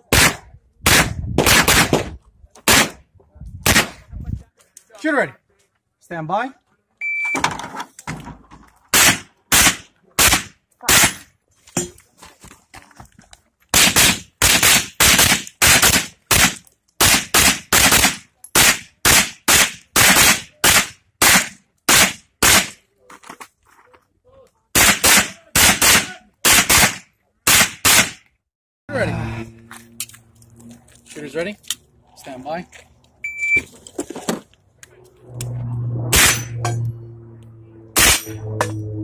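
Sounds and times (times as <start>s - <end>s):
gunshots: 0.0s - 3.0s, 3.6s - 4.0s, 8.9s - 11.2s, 13.8s - 22.8s, 24.8s - 28.2s, 36.1s - 36.6s, 38.0s - 38.4s.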